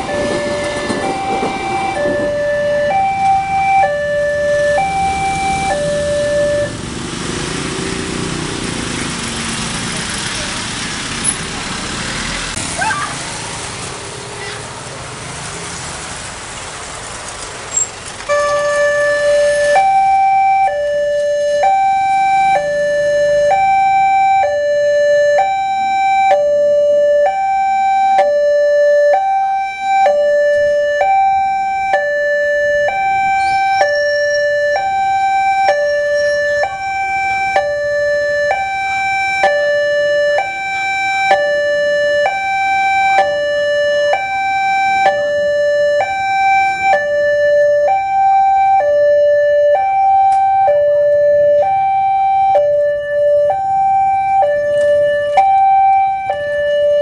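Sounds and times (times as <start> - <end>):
two-tone level crossing alarm: 0.0 - 6.8, 18.3 - 57.0.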